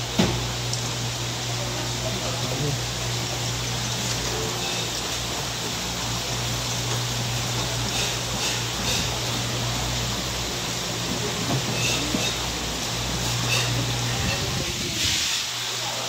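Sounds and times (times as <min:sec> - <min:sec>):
water running through tanks: 0:00.0 - 0:16.0.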